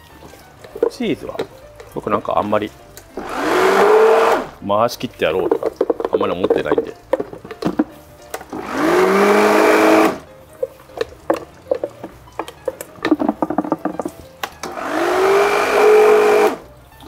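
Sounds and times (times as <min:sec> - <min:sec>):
blender motor whine: 0:03.2 - 0:04.5, 0:08.5 - 0:10.2, 0:14.6 - 0:16.6.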